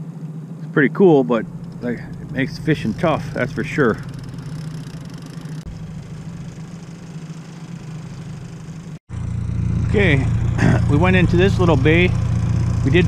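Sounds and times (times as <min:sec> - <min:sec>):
boat motor humming: 0:00.0 - 0:13.0.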